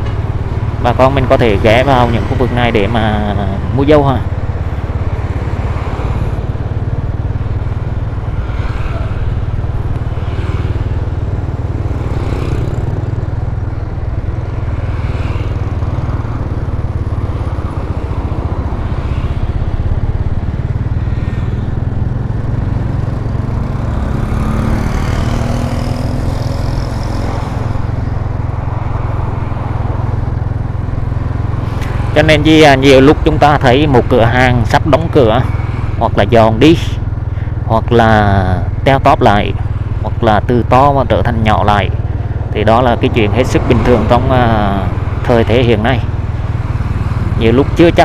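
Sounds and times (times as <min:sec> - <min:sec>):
street traffic rumble: 0:00.0 - 0:48.0
passing engine rising in pitch: 0:21.0 - 0:30.1.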